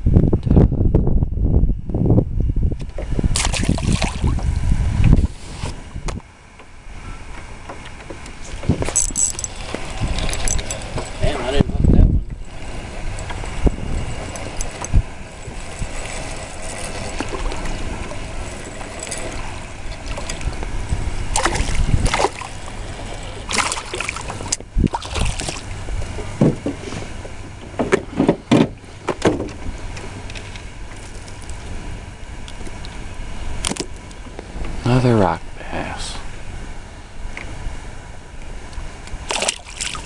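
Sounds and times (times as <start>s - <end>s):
wind on microphone: 0.0s - 7.6s, 8.2s - 40.0s
water lapping against hull: 3.0s - 5.9s, 7.4s - 33.4s, 38.6s - 40.0s
fish splashing: 21.2s - 25.8s, 39.2s - 40.0s.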